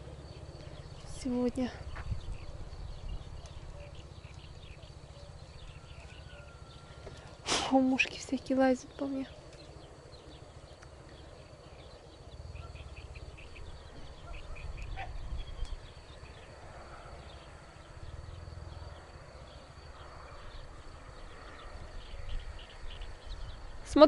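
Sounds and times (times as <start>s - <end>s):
wind buffeting microphone: 0.0s - 7.0s, 7.9s - 24.0s.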